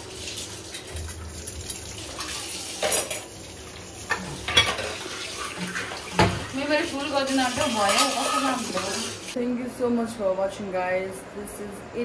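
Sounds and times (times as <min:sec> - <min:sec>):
dishes and cutlery clattering: 0:02.2 - 0:03.3, 0:04.1 - 0:06.5, 0:07.6 - 0:08.9.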